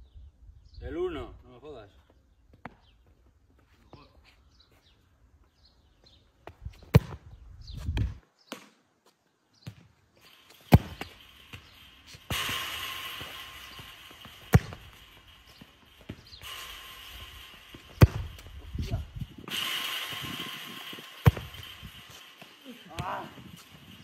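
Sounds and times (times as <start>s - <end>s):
football thuds on concrete: 6.7s - 7.2s
steady hiss: 10.2s - 24.0s.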